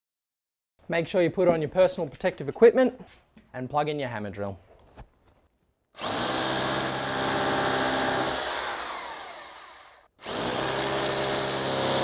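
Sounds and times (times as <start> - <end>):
hammer drill boring into brick: 6.0 - 12.0.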